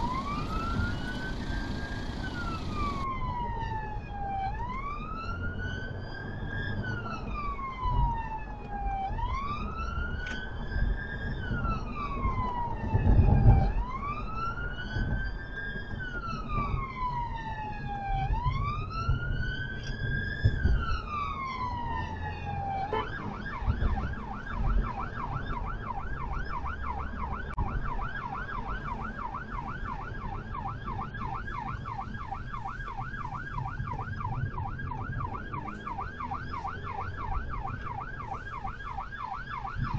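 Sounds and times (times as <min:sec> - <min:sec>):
road noise inside car: 0:00.0 - 0:03.1
electronic siren wailing and yelping: 0:00.0 - 0:03.5, 0:30.8 - 0:39.9.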